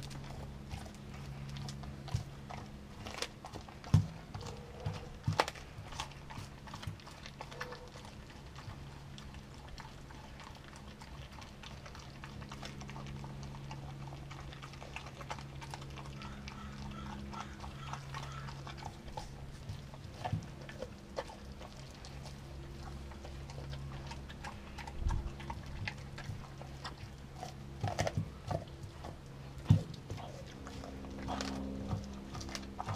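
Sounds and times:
dog gnawing frozen meat: 0:00.0 - 0:32.9
steady low hum: 0:00.0 - 0:32.9
teeth crunching on bone: 0:00.0 - 0:32.9.

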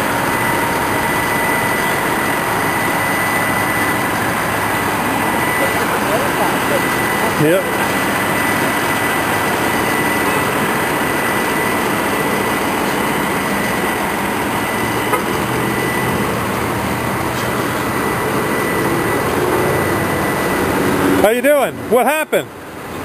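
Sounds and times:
vehicle rumble and road noise: 0:00.0 - 0:23.0
faint high tone: 0:05.3 - 0:08.7.

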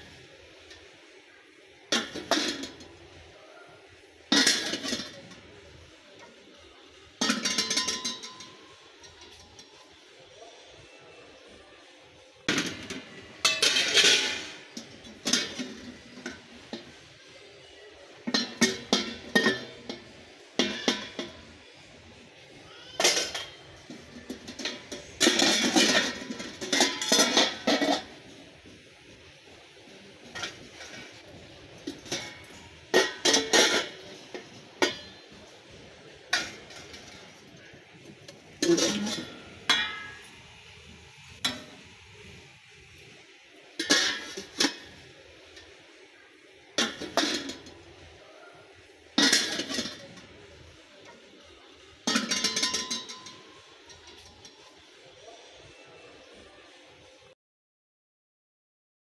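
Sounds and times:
pans clinking against wire racks: 0:01.9 - 0:03.2, 0:04.3 - 0:05.6, 0:07.2 - 0:09.9, 0:12.5 - 0:17.0, 0:18.2 - 0:21.6, 0:22.8 - 0:45.8, 0:46.8 - 0:48.1, 0:48.8 - 0:50.4, 0:52.0 - 0:54.8.

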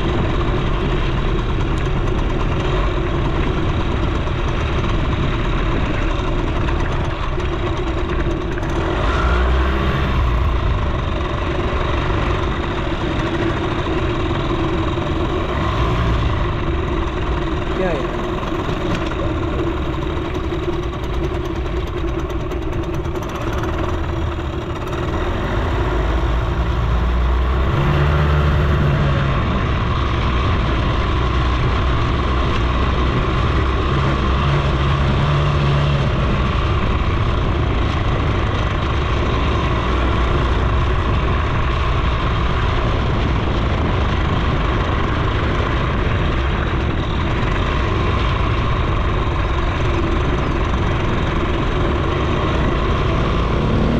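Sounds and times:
moped two-stroke engine running: 0:00.0 - 0:53.9.

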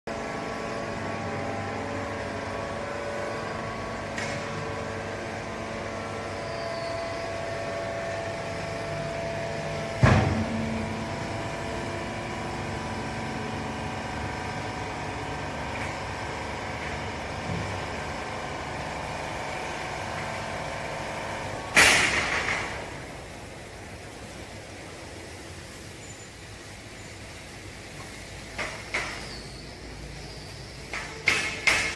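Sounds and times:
hydraulic baler motor humming: 0:00.1 - 0:24.9
loud metal clank: 0:09.9 - 0:11.3, 0:21.7 - 0:23.0.

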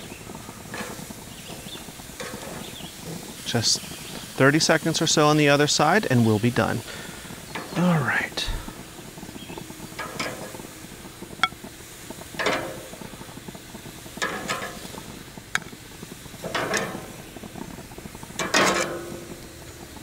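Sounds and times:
metal tongs scraping grill grates: 0:00.7 - 0:03.5, 0:09.9 - 0:10.7, 0:14.2 - 0:15.0, 0:16.4 - 0:17.1, 0:18.4 - 0:19.4.

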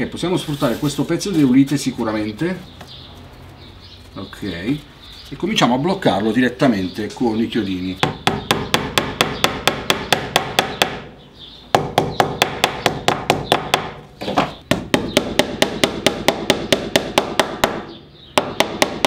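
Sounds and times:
hammer tapping nails into wood: 0:14.7 - 0:19.0.

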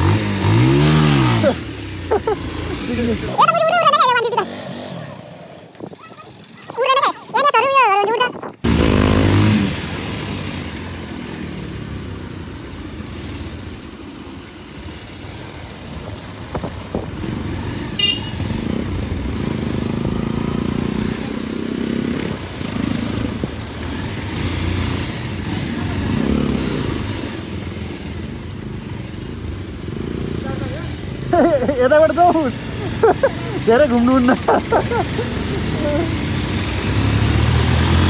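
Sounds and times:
motorcycle engine running: 0:00.0 - 0:38.0
wind noise: 0:05.7 - 0:09.2.

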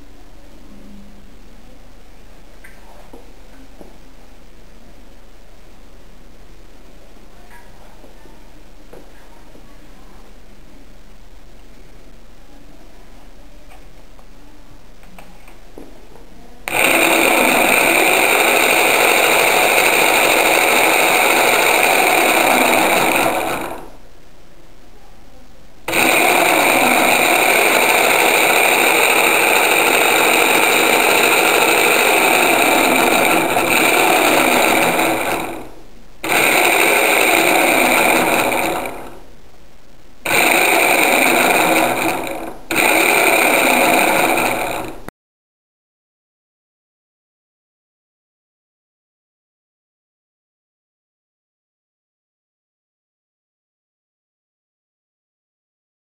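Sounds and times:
electric motor whining: 0:16.7 - 0:24.0, 0:25.9 - 0:39.2, 0:40.3 - 0:45.1.

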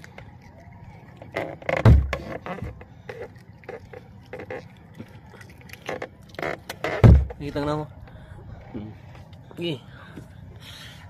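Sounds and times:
dull thump: 0:01.7 - 0:02.8, 0:06.8 - 0:07.4.

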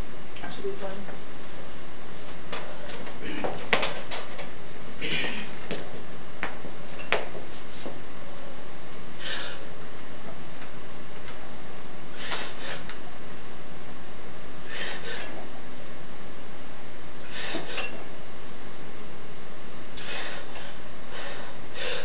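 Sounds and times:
person breathing hard: 0:09.2 - 0:09.7, 0:12.1 - 0:13.0, 0:14.6 - 0:15.5, 0:17.2 - 0:17.9, 0:20.0 - 0:22.0.

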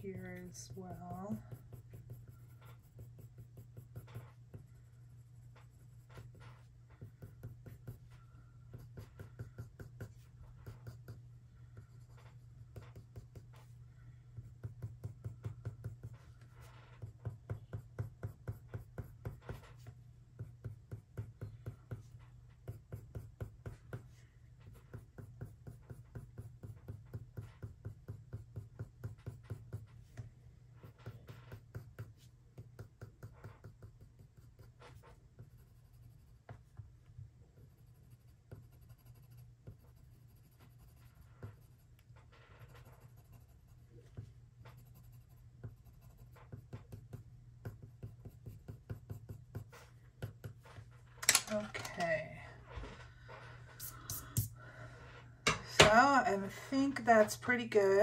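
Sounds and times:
colored pencil scratching on paper: 0:00.0 - 0:36.8, 0:37.4 - 0:51.0.

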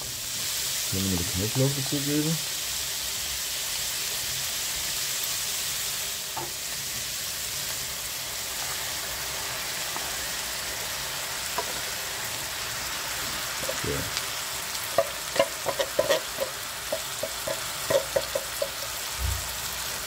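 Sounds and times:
onions frying in a pan: 0:00.0 - 0:20.0
spoon knocking against pan: 0:14.9 - 0:19.0.

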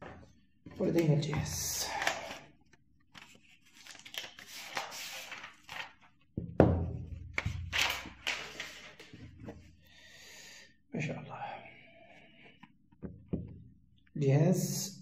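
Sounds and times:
plastic sheet crinkling: 0:03.2 - 0:06.1.

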